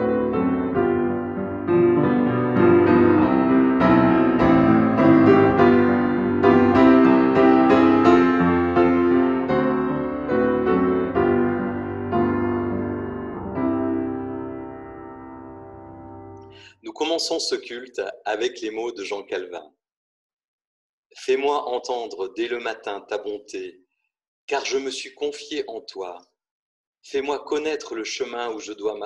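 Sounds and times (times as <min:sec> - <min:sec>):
slow upright piano: 0:00.0 - 0:16.6.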